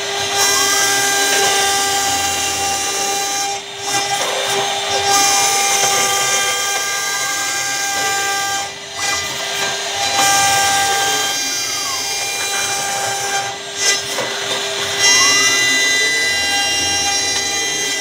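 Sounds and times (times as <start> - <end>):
router spindle whine: 0.0 - 18.0.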